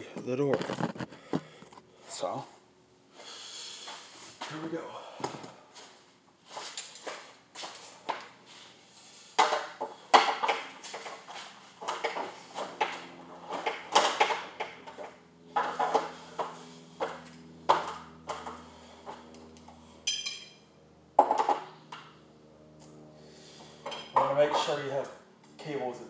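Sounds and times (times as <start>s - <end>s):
metal bar ringing ping: 20.1s - 20.6s.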